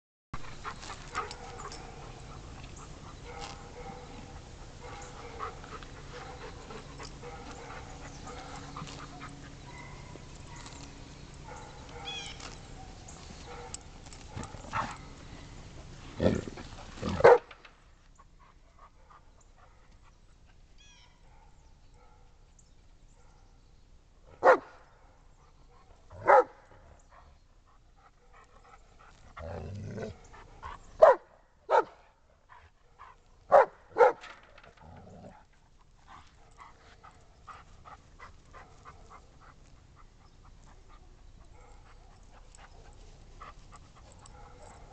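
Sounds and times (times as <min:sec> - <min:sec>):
dog barking: 0:03.2 - 0:04.2, 0:04.8 - 0:06.5, 0:07.2 - 0:09.0, 0:09.7 - 0:10.8, 0:11.5 - 0:15.0, 0:17.1 - 0:17.5, 0:24.3 - 0:24.8, 0:26.2 - 0:26.6, 0:31.0 - 0:32.0, 0:33.5 - 0:34.4, 0:41.5 - 0:42.2, 0:44.2 - 0:44.9.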